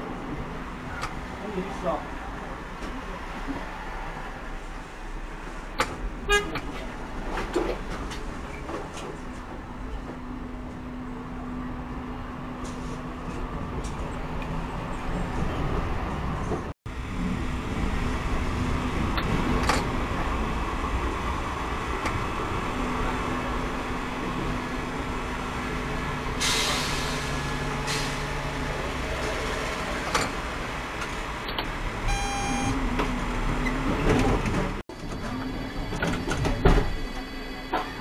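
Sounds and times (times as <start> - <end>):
tram rumble with motor hum: 0.0 - 38.0
brief tone: 32.1 - 32.9.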